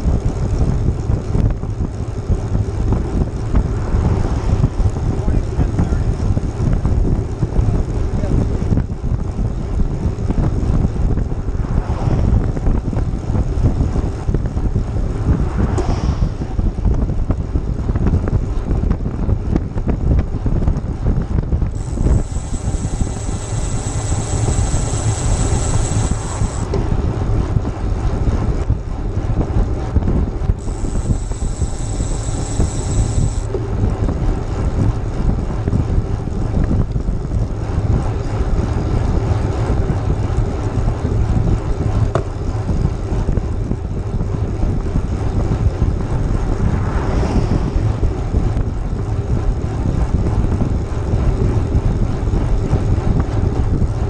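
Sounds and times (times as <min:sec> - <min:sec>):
bike rolling low rumble: 0:00.0 - 0:54.0
wind buffeting microphone: 0:00.0 - 0:54.0
high thin buzz: 0:21.8 - 0:26.8, 0:30.6 - 0:33.6.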